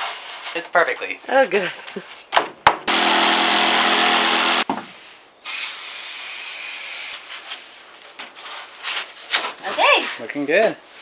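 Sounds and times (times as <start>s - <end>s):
power tool motor whine: 2.9s - 4.6s.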